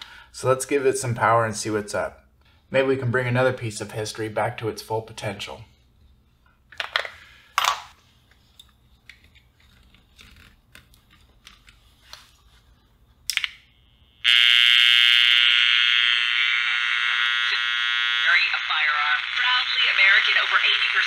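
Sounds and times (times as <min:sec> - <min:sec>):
harsh buzzing from radio speaker: 0:13.7 - 0:21.0.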